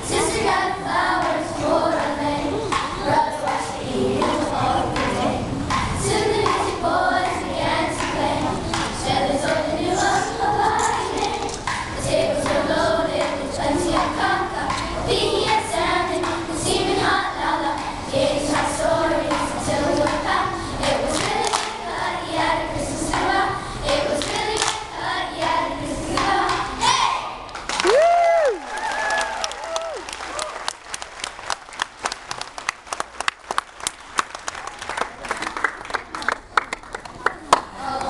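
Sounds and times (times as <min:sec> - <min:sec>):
children singing in unison: 0:00.0 - 0:27.2.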